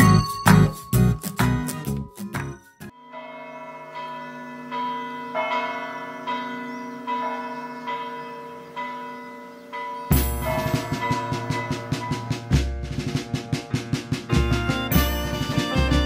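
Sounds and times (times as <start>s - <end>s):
church bells ringing: 0.0s - 1.2s, 2.9s - 12.8s.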